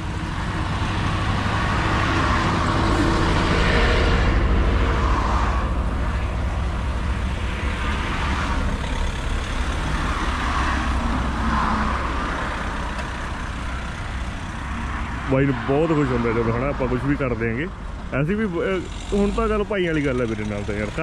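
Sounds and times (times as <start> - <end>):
car engine idling: 0.0 - 2.0, 5.6 - 21.0
traffic passing: 0.0 - 21.0.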